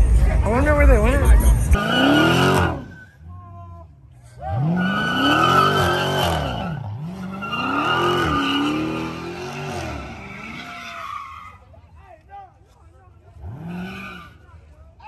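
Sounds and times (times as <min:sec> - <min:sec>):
car engine revving: 0:00.0 - 0:03.2, 0:04.4 - 0:10.8, 0:13.3 - 0:14.4
tyres squealing: 0:04.5 - 0:11.6.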